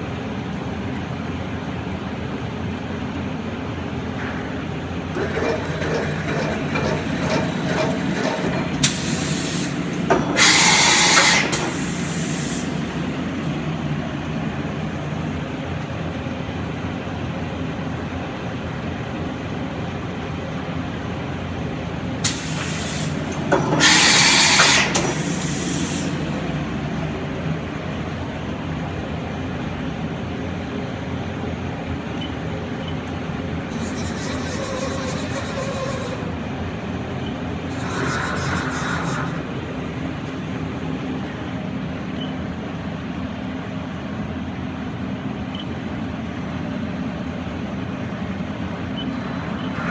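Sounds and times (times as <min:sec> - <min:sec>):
machine humming: 0:04.2 - 0:16.7, 0:32.2 - 0:42.7, 0:46.6 - 0:49.9
compressed air hiss: 0:08.8 - 0:12.9, 0:22.2 - 0:26.2.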